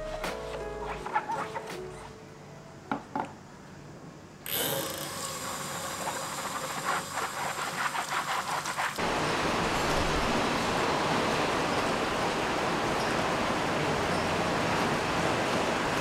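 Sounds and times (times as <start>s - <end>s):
steady rain: 9.0s - 16.0s.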